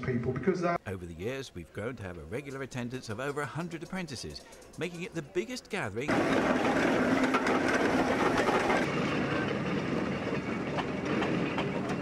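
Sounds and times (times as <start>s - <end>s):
machinery clattering: 6.0s - 12.0s.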